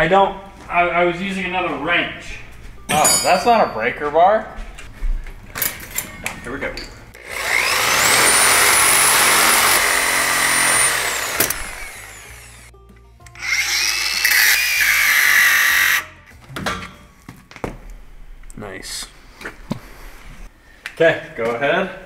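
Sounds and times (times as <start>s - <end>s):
angle grinder cutting metal: 7.2s - 12.7s, 13.4s - 16.2s.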